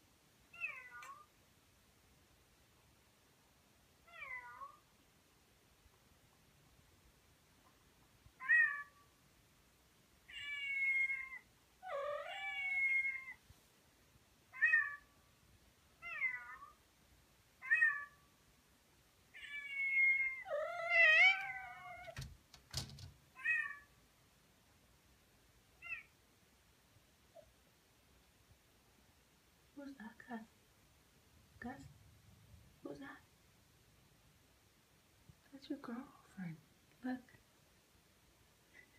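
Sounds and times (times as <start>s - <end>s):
cat meowing: 0.5s - 1.3s, 10.3s - 13.4s, 17.6s - 18.2s, 19.4s - 22.2s, 23.4s - 23.9s.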